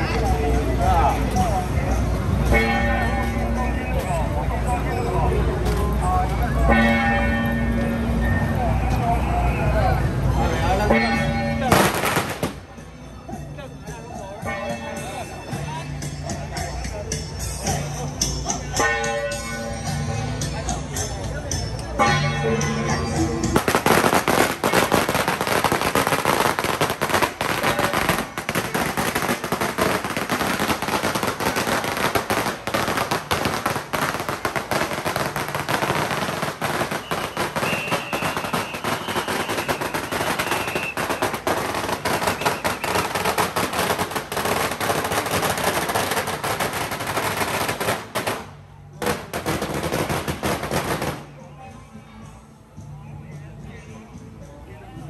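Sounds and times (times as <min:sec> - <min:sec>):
firecrackers crackling: 0:11.6 - 0:12.9, 0:23.4 - 0:51.4.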